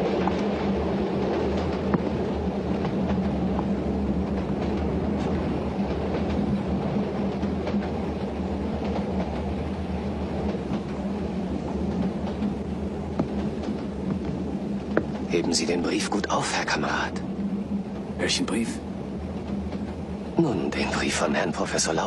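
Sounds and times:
train wheels rumbling on track: 0.0s - 22.0s.

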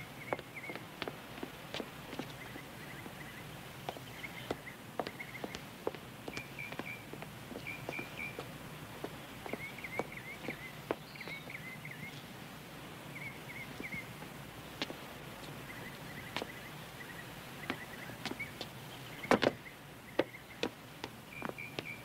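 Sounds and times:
small bird chirping: 0.1s - 0.8s, 6.3s - 8.5s, 9.2s - 12.3s, 21.3s - 22.0s
footsteps: 0.3s - 3.2s, 3.8s - 11.4s
knocks and scuffs on gate: 19.2s - 19.6s.

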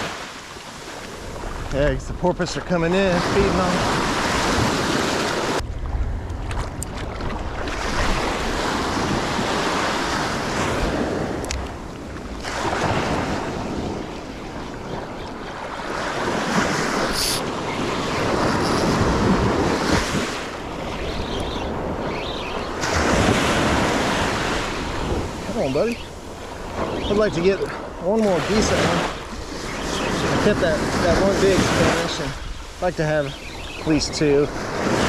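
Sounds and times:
wind buffeting microphone: 1.0s - 35.0s
surf breaking on beach: 2.8s - 5.6s, 15.7s - 21.0s, 22.6s - 25.9s, 26.6s - 35.0s.

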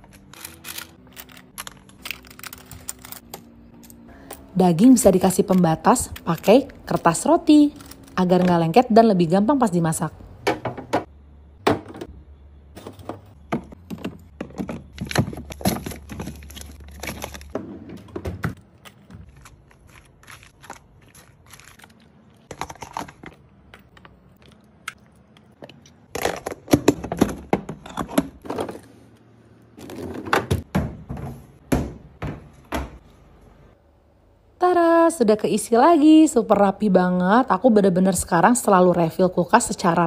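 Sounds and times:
plastic containers clicking and knocking: 12.8s - 16.6s.

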